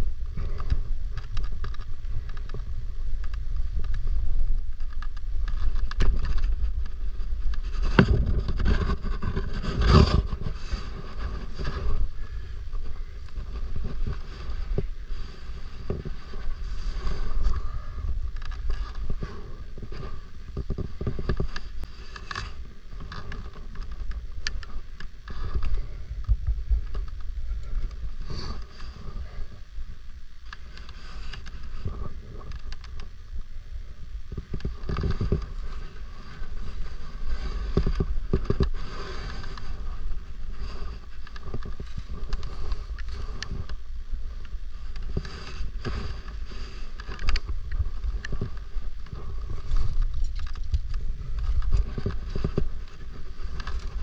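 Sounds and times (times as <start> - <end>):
wind buffeting microphone: 0.0 - 21.9
clicks and rustles: 0.0 - 33.5, 34.3 - 54.0.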